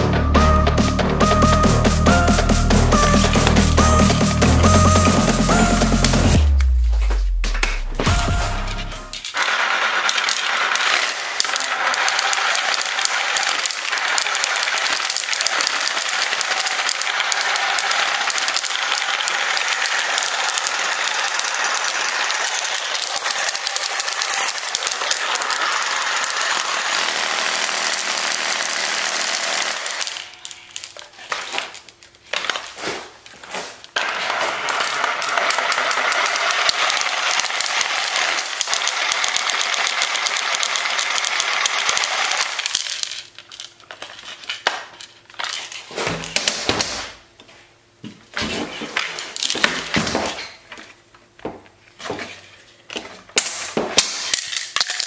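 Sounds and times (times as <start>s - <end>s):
reciprocating saw running: 1.3s - 30.4s, 34.0s - 42.8s.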